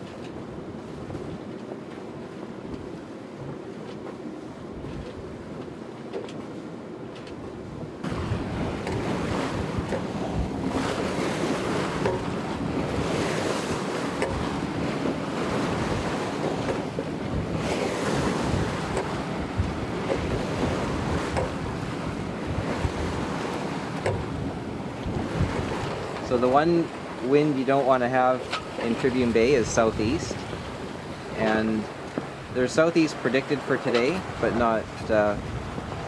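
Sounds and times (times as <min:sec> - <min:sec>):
wind buffeting microphone: 0:00.0 - 0:03.7, 0:07.3 - 0:36.0
bow wave hissing and splashing: 0:08.0 - 0:27.7.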